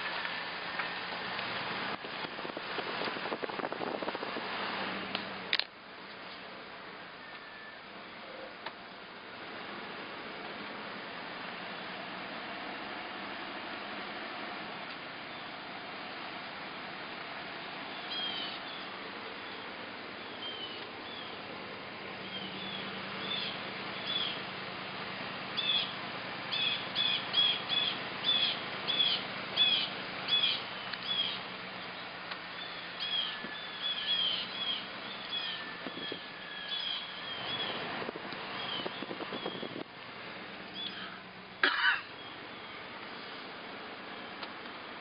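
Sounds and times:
birds chirping: 17.8s - 21.4s, 22.2s - 24.5s, 25.5s - 37.9s, 38.5s - 39.8s, 40.7s - 43.4s.

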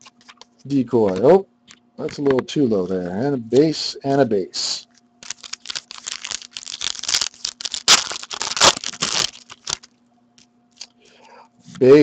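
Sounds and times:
foil wrapper tearing and crinkling: 5.2s - 9.9s.

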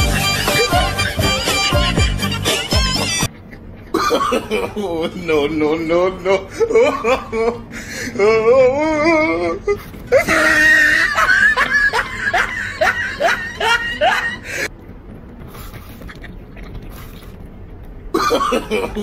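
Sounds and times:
person vocalising high and wavering: 8.2s - 11.0s.

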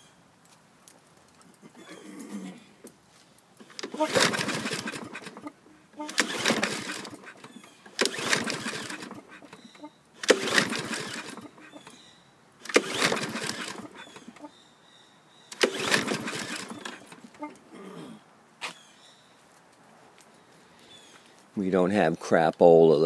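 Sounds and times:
lawn mower engine turning over: 3.6s - 12.0s, 12.6s - 14.5s, 15.5s - 17.6s.

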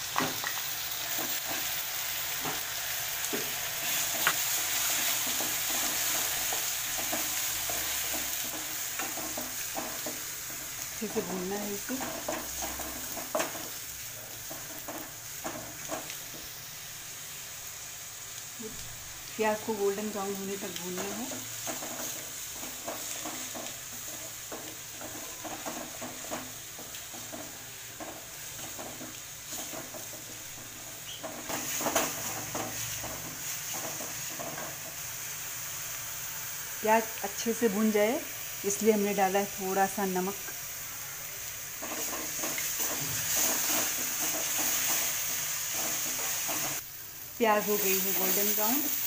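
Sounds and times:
paste sizzling in hot oil: 0.0s - 49.0s
wooden spatula scraping a pan: 21.0s - 35.0s, 41.8s - 46.8s.

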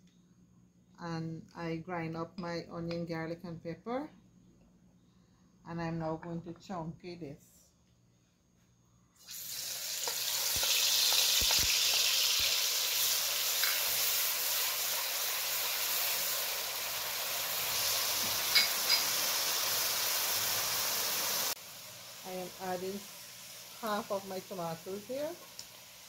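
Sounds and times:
food frying in hot oil: 9.2s - 26.0s.

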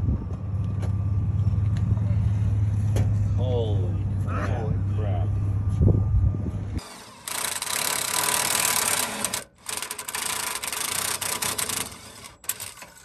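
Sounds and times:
cordless ratchet buzzing: 6.8s - 13.0s.

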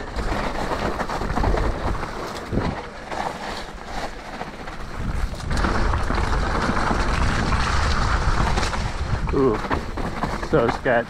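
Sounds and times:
bike rattles and clicks: 0.0s - 11.0s
tyres rolling over dirt: 0.0s - 11.0s
wind rushing over microphone: 4.9s - 10.8s.

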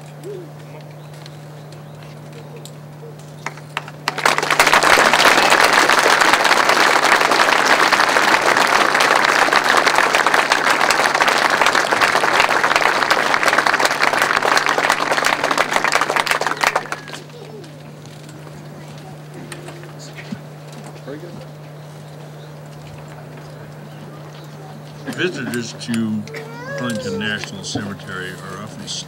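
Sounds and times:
audience applauding: 3.4s - 17.9s, 25.5s - 28.3s.

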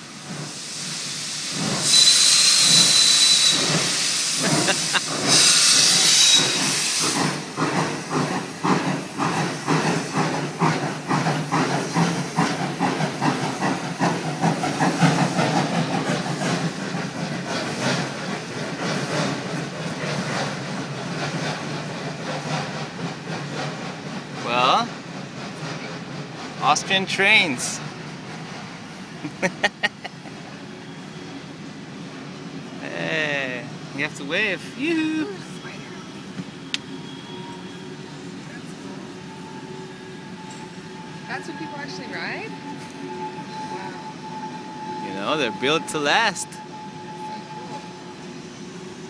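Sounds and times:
steam hissing: 0.0s - 49.0s
steam whistle blasts: 1.8s - 4.3s, 5.3s - 7.1s, 39.2s - 48.3s.

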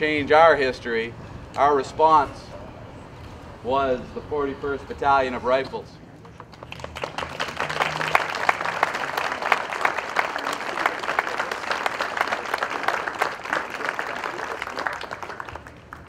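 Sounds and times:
crowd applauding: 6.5s - 16.0s.

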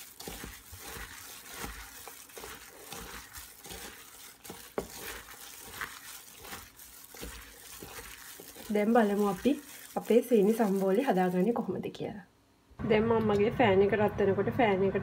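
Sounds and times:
plastic bag crinkling: 0.0s - 11.9s
wet squishing of onions: 0.0s - 11.9s.

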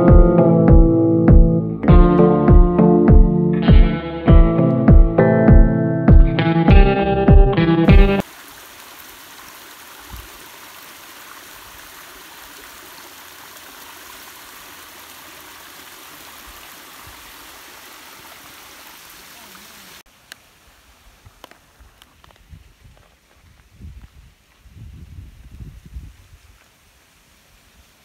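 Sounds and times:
creek water trickling: 8.2s - 23.4s.

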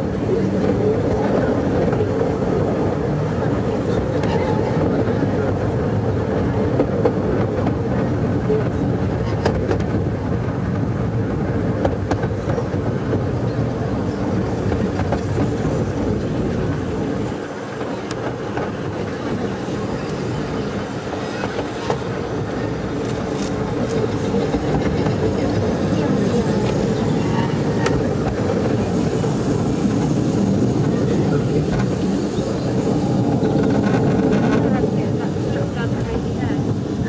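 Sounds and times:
wheels rumbling on rail: 0.0s - 37.0s.

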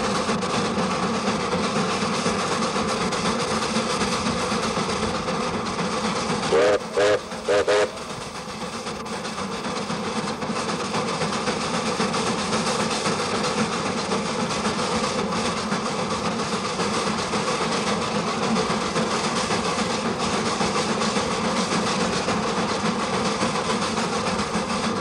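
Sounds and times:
steam locomotive rumble: 0.0s - 25.0s
wheels clattering on rails: 0.0s - 25.0s
steam whistle toots: 6.4s - 8.3s.

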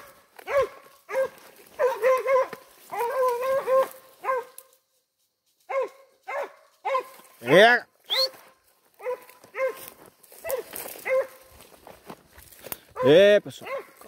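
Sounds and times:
dog barking: 0.0s - 4.6s, 5.7s - 7.8s, 9.0s - 11.5s, 13.0s - 14.0s.

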